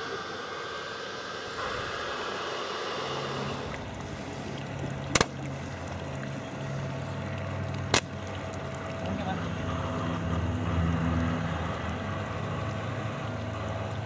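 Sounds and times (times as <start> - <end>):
electric motor hum: 0.0 - 14.0
lapping water: 1.5 - 14.0
model cannon shot: 5.1 - 5.4.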